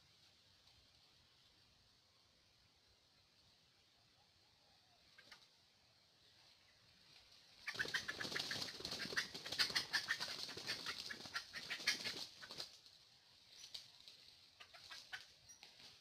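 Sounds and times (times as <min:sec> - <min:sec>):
bird wings flapping rapidly: 0:07.6 - 0:13.0.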